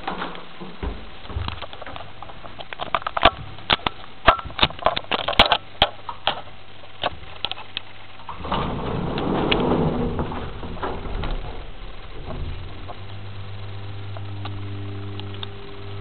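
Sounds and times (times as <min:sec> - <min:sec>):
rattling rumble: 0:00.0 - 0:16.0
sharp clicks and knocks: 0:00.0 - 0:16.0
lift low hum: 0:06.6 - 0:16.0.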